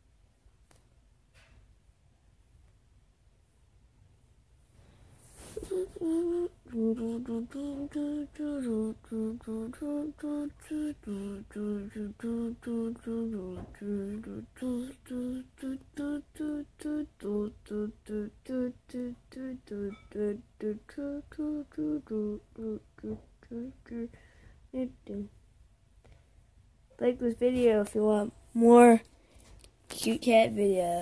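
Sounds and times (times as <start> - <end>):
person humming: 5.5 - 24.2, 24.8 - 25.3.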